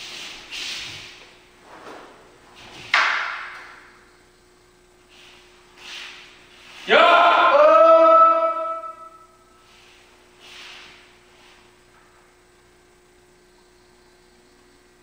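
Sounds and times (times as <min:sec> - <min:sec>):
feet sliding on wooden floor: 0:00.0 - 0:03.0, 0:09.7 - 0:11.7.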